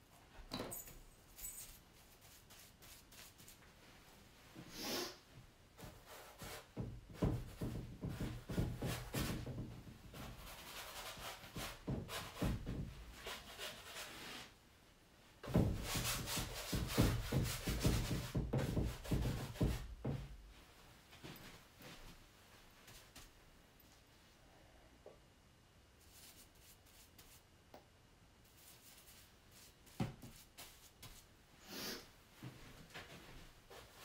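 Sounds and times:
paintbrush scrubbing on canvas: 0:02.0 - 0:03.6, 0:26.0 - 0:27.4, 0:28.4 - 0:32.0.

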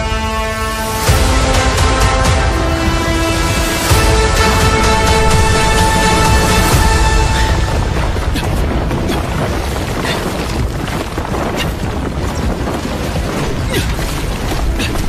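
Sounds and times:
soundtrack music: 0:00.0 - 0:09.7
loud rumble with booms: 0:01.1 - 0:14.9.

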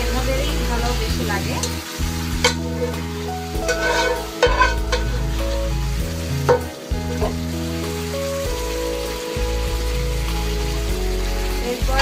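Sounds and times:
food sizzling in oil: 0:00.0 - 0:12.0
spatula scraping pan: 0:01.6 - 0:05.7.

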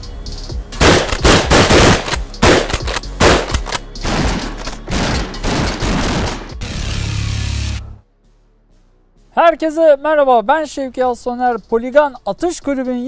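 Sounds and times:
shotgun blasts: 0:00.8 - 0:06.5.

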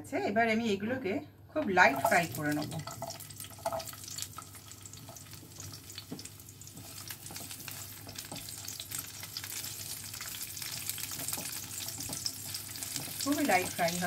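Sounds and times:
onion sizzling in hot oil: 0:01.7 - 0:14.0
spatula scraping a pan: 0:05.1 - 0:14.0.

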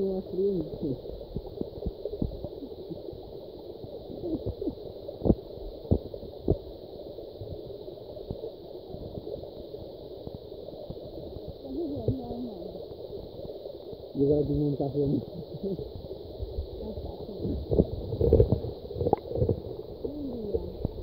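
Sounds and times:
muffled underwater water gurgling: 0:00.0 - 0:21.0
underwater clicks and knocks: 0:01.2 - 0:02.5, 0:17.4 - 0:20.1.

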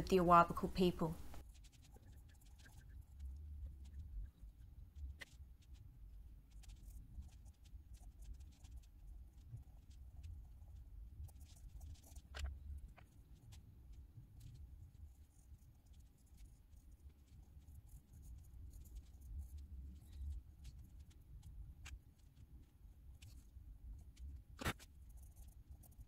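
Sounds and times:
pencil scratching on paper: 0:01.5 - 0:03.2, 0:06.5 - 0:13.1, 0:15.1 - 0:21.1, 0:24.6 - 0:26.0.

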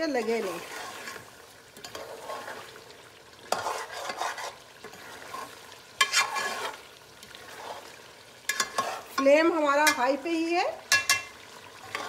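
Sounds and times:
low frying sizzle: 0:00.0 - 0:12.0
metal spoon scraping pot: 0:00.2 - 0:01.2, 0:01.8 - 0:02.7, 0:03.5 - 0:06.8, 0:07.5 - 0:10.0, 0:10.9 - 0:12.0.

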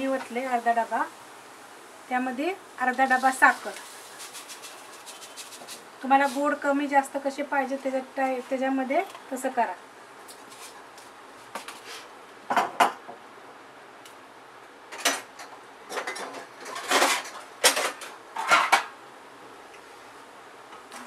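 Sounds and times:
metal kitchenware clattering: 0:15.9 - 0:18.9.

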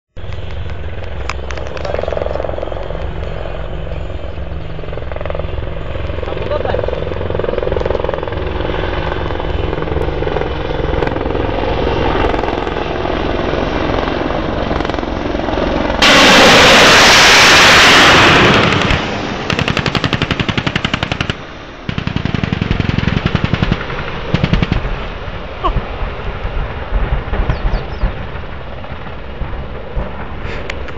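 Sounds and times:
helicopter running: 0:00.2 - 0:30.9
loud rushing blast: 0:14.0 - 0:30.9
rapid sharp shots: 0:16.0 - 0:25.3.

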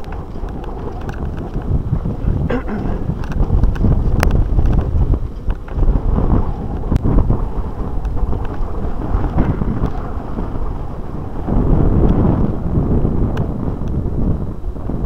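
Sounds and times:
bike clicks and rattles: 0:00.0 - 0:10.5
bike shaking over dirt track: 0:00.0 - 0:15.0
wind rumbling on microphone: 0:00.0 - 0:15.0.

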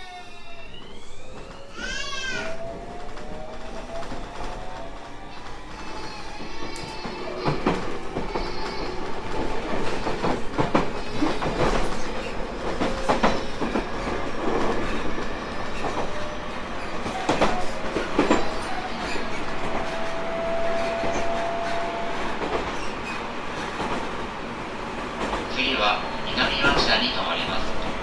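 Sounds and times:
thin train whine: 0:00.0 - 0:28.0
wheels rumbling on rail: 0:00.6 - 0:28.0
clacks over rail joints: 0:06.4 - 0:15.2, 0:16.9 - 0:20.2.

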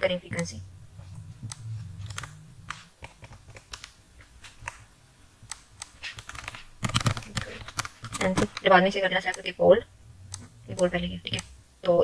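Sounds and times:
keyboard and mouse clicking: 0:01.4 - 0:04.0, 0:05.5 - 0:09.5, 0:10.3 - 0:11.5.

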